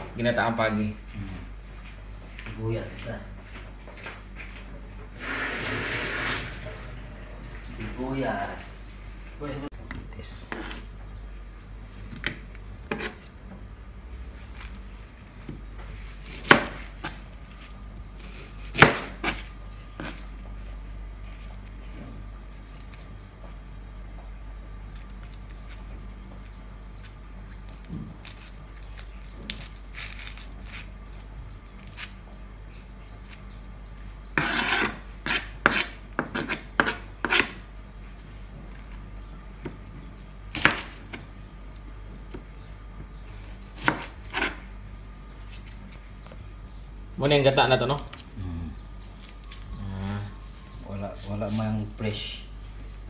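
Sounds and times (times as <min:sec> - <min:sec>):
knife cutting onions: 0:12.9 - 0:13.2, 0:16.0 - 0:20.3, 0:34.4 - 0:37.6, 0:40.5 - 0:41.1, 0:43.3 - 0:44.7, 0:50.9 - 0:52.4.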